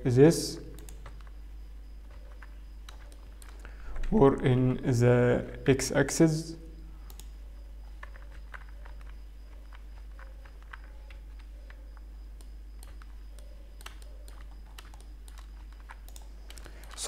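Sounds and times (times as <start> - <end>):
low electrical hum: 0.0 - 17.0
keyboard and mouse clicks: 0.7 - 1.4, 2.0 - 4.2, 7.0 - 17.0.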